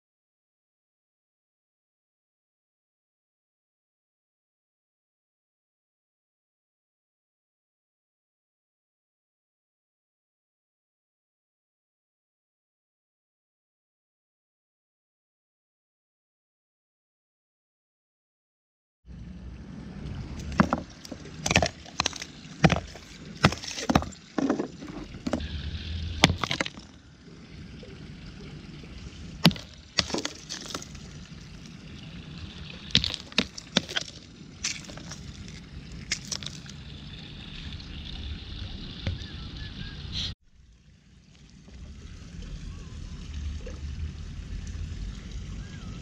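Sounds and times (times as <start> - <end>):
ice cracking on brick paving: 20.4 - 25.4, 26.2 - 27.0, 29.4 - 31.1, 32.8 - 36.8.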